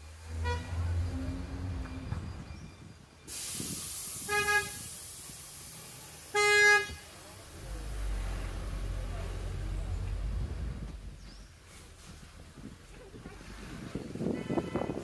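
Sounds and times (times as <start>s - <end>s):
street noise hiss: 0.0s - 15.0s
vehicle horn honking: 0.3s - 1.0s, 4.3s - 4.9s, 6.4s - 7.0s, 14.2s - 15.0s.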